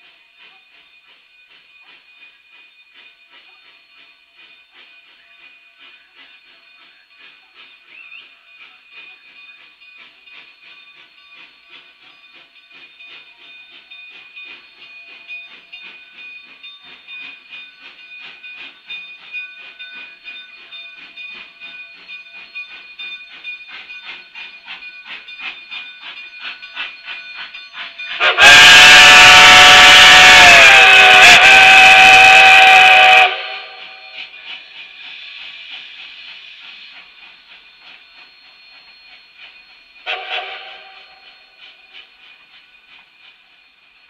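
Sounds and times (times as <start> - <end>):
steam locomotive exhaust chuffs: 0.0 - 44.0
loud steam whistle: 28.1 - 34.3, 40.0 - 41.6.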